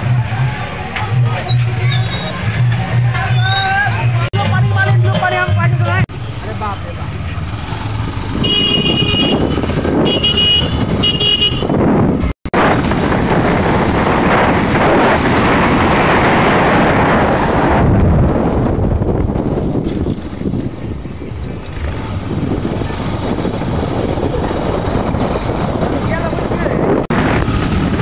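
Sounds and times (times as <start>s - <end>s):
motorcycle engine: 0.0s - 28.0s
wind noise: 8.0s - 28.0s
short horn beeps: 10.1s - 11.7s.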